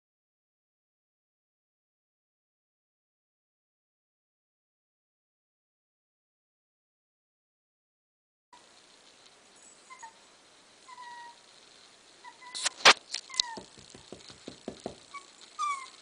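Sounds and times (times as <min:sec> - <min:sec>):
puppy whimpering: 0:09.8 - 0:11.4, 0:12.2 - 0:13.8, 0:15.1 - 0:16.0
loud sharp knock: 0:13.6 - 0:15.0
soft low thumps: 0:13.6 - 0:15.1.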